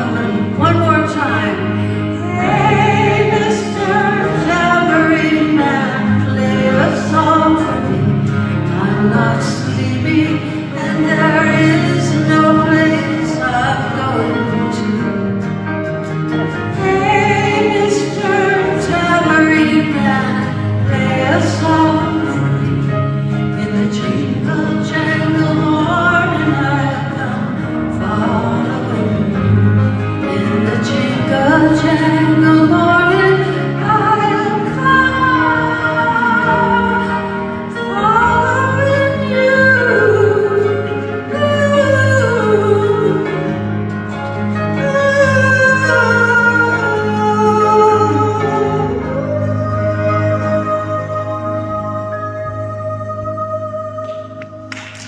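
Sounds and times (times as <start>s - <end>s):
strummed acoustic guitar: 0.0s - 55.0s
woman singing folk song: 0.0s - 55.0s.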